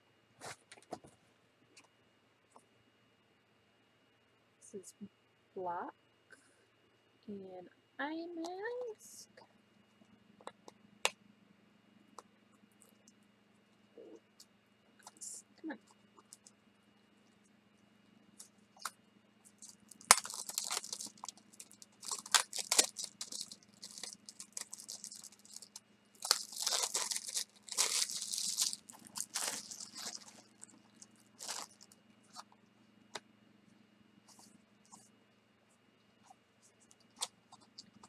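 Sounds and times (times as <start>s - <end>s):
package tearing and crinkling: 19.6s - 31.9s.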